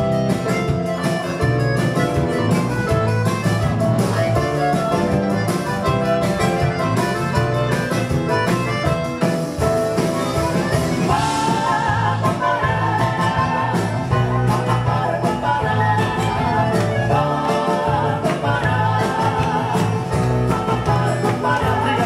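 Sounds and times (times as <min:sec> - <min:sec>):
clarinet: 0:00.0 - 0:17.5
live band playing: 0:00.0 - 0:22.0.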